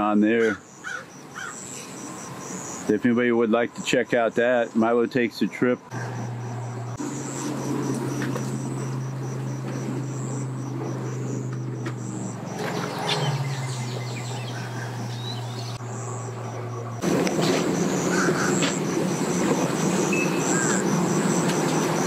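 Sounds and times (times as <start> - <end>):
vehicle engine idling: 5.5 - 22.0.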